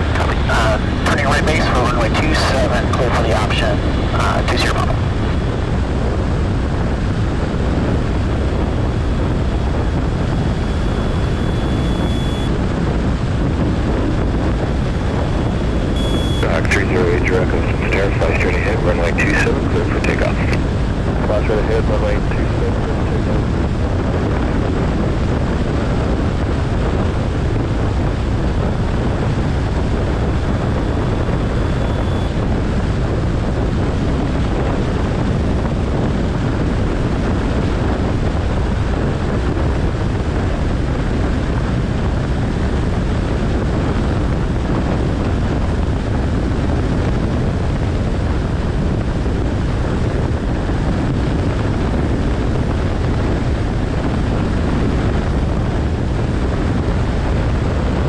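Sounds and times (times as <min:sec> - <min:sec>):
aircraft engine and propeller drone: 0:00.0 - 0:58.0
wind rushing: 0:04.8 - 0:36.1.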